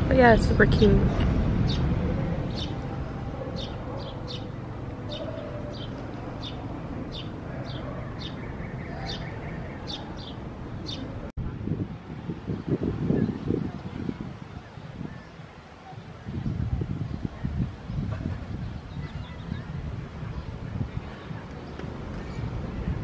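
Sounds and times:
bird chirping: 1.0 - 11.3.

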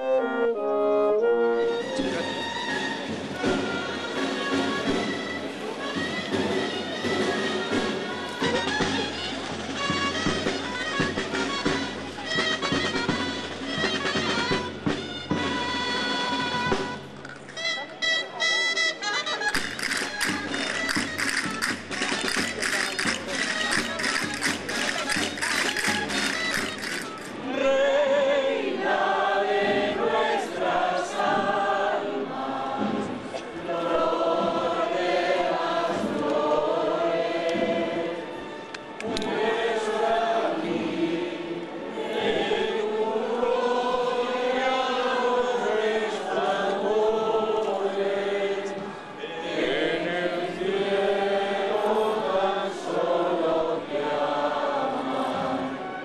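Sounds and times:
group singing a hymn: 25.5 - 56.0.

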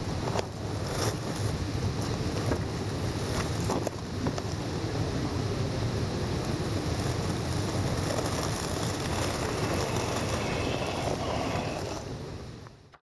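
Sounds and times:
wind rumble on microphone: 0.0 - 13.0
toy car electric motor whir: 6.9 - 12.1.

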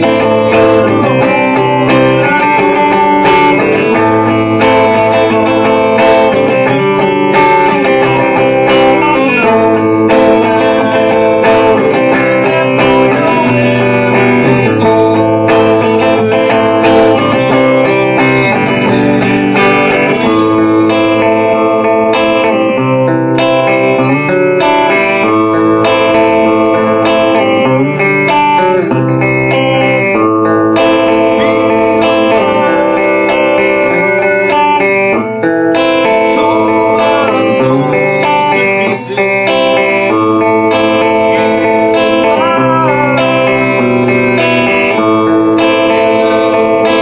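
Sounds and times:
rock band music: 0.0 - 47.0.

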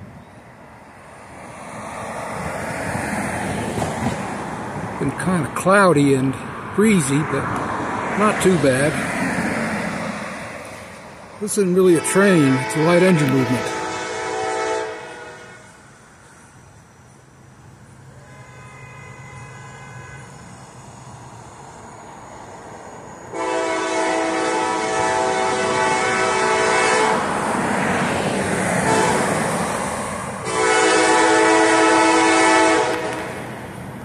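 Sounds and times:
locomotive air horn blasts: 11.8 - 15.8, 18.2 - 20.4, 23.3 - 27.3, 28.8 - 29.3, 30.4 - 33.4.

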